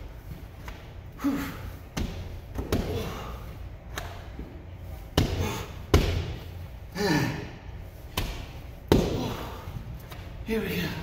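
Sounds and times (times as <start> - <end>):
hard breathing: 6.8 - 8.0.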